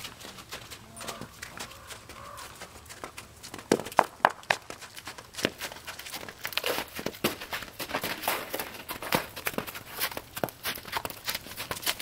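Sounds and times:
footsteps crunching on icy snow: 0.0 - 12.0.

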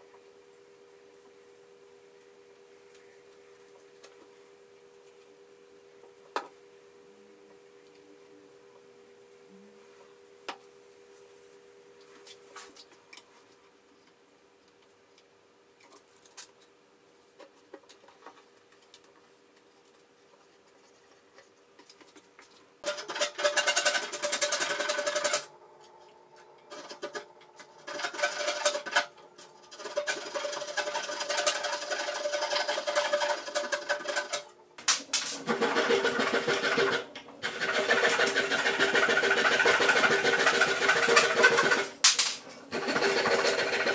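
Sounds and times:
hand saw cutting wood: 22.8 - 25.5, 26.7 - 34.5, 35.4 - 41.9, 42.7 - 43.9.

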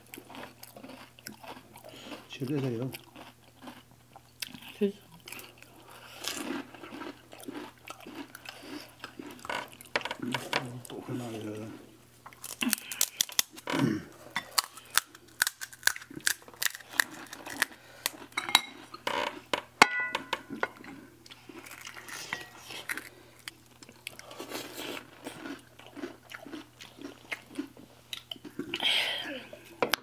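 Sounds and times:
crisp shells crunching: 12.4 - 13.6, 14.5 - 18.3, 21.5 - 23.6
spoons scraping ceramic plates: 22.1 - 22.7.

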